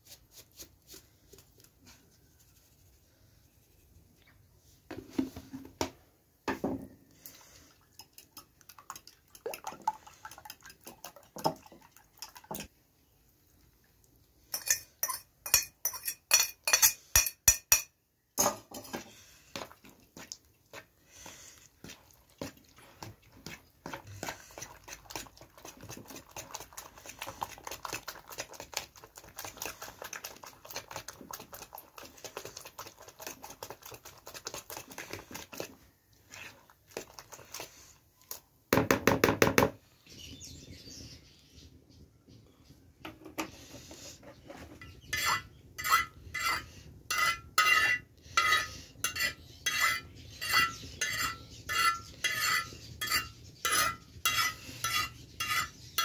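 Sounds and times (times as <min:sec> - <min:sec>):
metal spoon beating eggs in bowl: 0:07.9 - 0:12.8, 0:14.5 - 0:20.9, 0:21.7 - 0:37.9, 0:44.8 - 0:56.0
spoon clinking against bowl: 0:14.5 - 0:18.6, 0:45.1 - 0:55.7.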